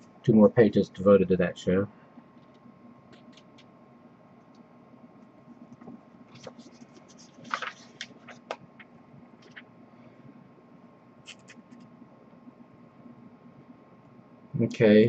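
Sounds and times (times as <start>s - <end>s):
paper pages rustling: 5.7s - 9.7s, 11.3s - 11.9s.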